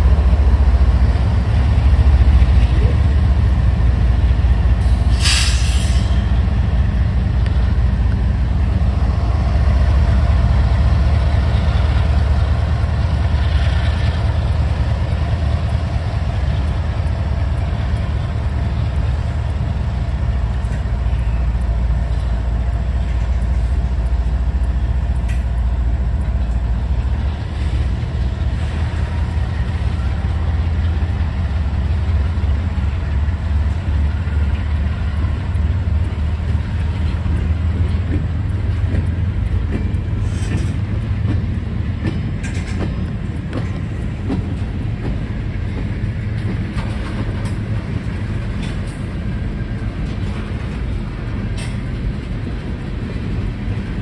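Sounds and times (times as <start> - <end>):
freight train rumbling past: 0.0 - 54.0
short hiss: 4.9 - 6.2.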